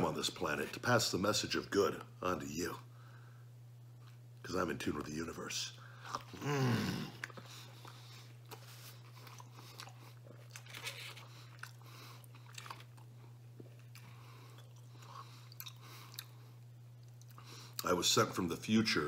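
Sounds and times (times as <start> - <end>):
steady low hum: 0.0 - 19.0
man chewing food: 5.9 - 17.9.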